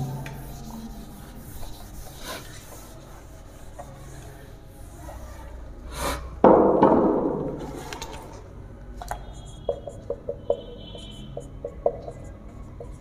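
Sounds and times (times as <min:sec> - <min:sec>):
cloth rubbing on whiteboard: 0:00.0 - 0:05.5.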